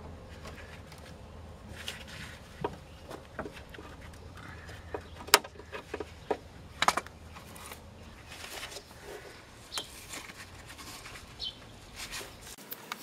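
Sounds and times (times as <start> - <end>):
tools clicking and knocking: 2.6 - 11.3.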